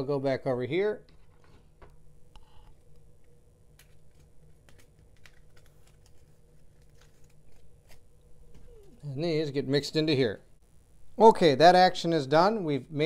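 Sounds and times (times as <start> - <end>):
cards clicking and tapping: 3.8 - 8.0.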